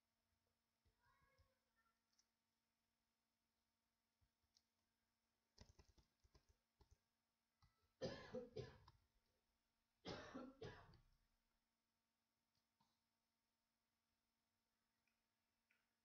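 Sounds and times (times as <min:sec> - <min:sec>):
keyboard keystrokes: 0:05.6 - 0:07.0
person coughing: 0:08.0 - 0:08.9, 0:10.1 - 0:11.0.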